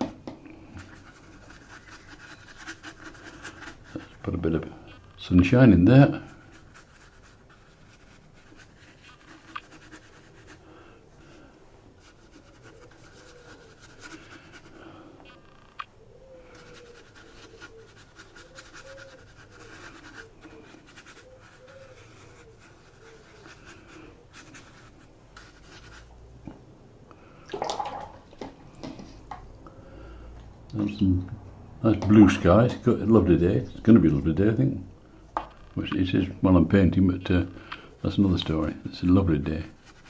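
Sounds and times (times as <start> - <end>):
brush swishing on paper: 0.7 - 4.4, 5.9 - 10.6, 11.9 - 14.9, 16.6 - 26.2, 39.0 - 40.0.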